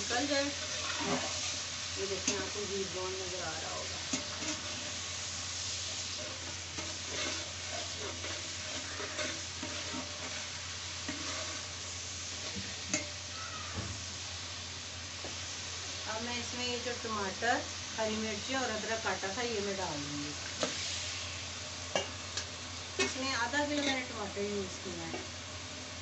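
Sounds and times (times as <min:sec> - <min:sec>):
onions sizzling in oil: 0:00.0 - 0:26.0
metal spatula scraping a pot: 0:00.1 - 0:02.6, 0:03.6 - 0:05.1, 0:05.8 - 0:13.1, 0:23.0 - 0:24.1.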